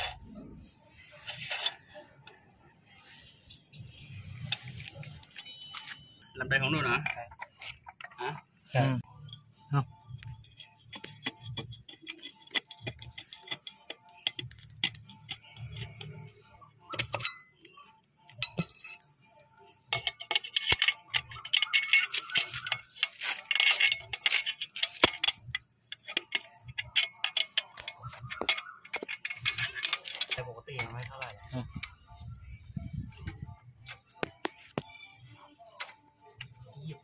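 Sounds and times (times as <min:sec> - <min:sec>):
metallic clicks and clinks: 0:04.5 - 0:06.2, 0:10.2 - 0:32.2.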